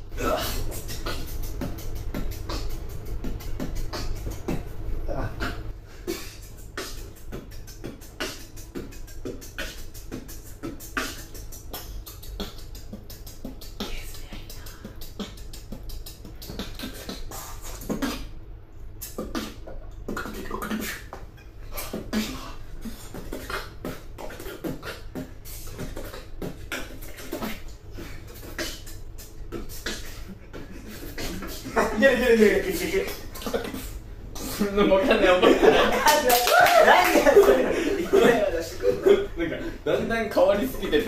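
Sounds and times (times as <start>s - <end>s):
person beatboxing: 0.0s - 41.0s.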